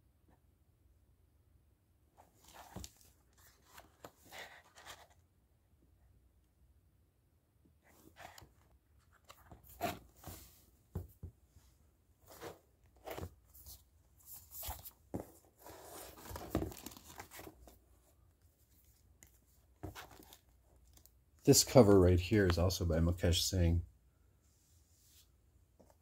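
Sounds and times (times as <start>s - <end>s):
books knocking softly: 10.2s - 11.4s
paper pages rustling: 12.3s - 17.8s.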